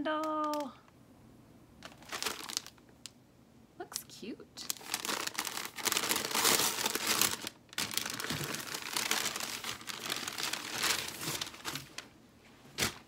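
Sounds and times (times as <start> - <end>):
packaging crinkling and rustling: 1.8 - 2.9, 4.6 - 13.0.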